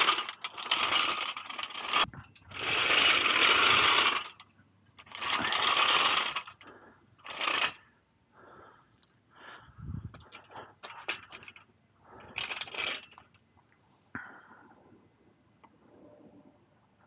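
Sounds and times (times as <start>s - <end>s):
metal lift rattling on asphalt: 0.0s - 4.4s.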